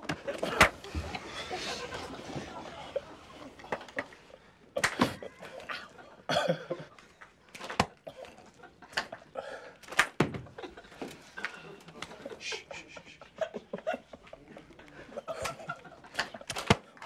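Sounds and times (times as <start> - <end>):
stifled snickering: 0.2 - 7.0, 10.6 - 16.5.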